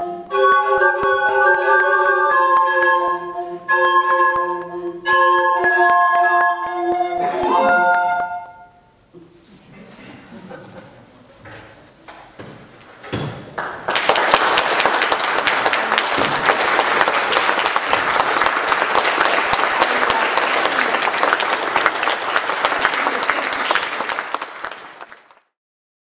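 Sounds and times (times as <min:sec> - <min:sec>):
audience applauding: 0:13.6 - 0:25.6.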